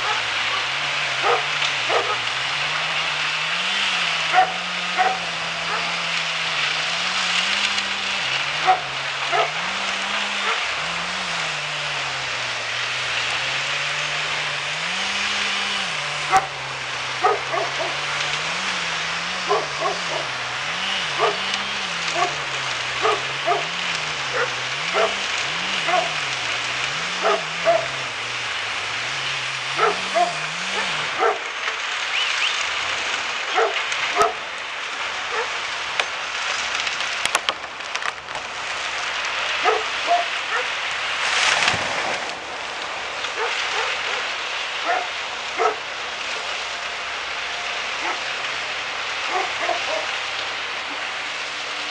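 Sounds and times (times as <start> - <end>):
dog barking: 0.0 - 2.3, 4.3 - 6.0, 8.6 - 9.7, 10.4 - 10.7, 16.2 - 16.6, 17.2 - 18.0, 19.4 - 20.4, 21.0 - 25.2, 25.8 - 26.3, 27.2 - 28.0, 29.8 - 31.5, 33.5 - 34.4, 35.3 - 35.6, 39.6 - 40.8, 43.4 - 45.8, 48.0 - 48.3, 49.3 - 50.1
engine running: 0.0 - 51.9.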